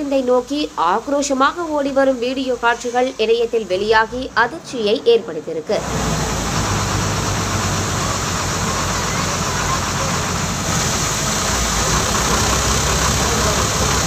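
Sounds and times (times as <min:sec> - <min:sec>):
bus diesel engine idling: 0:05.7 - 0:14.0.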